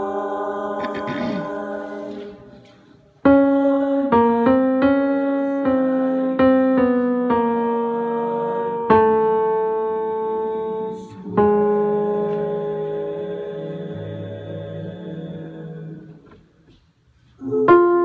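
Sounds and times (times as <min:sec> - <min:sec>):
piano keyboard melody: 0:03.3 - 0:13.0, 0:17.5 - 0:18.0.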